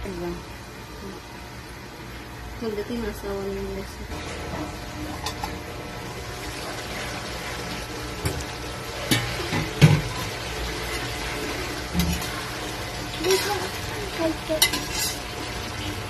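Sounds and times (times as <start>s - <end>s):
stew bubbling in a pot: 4.2s - 16.0s.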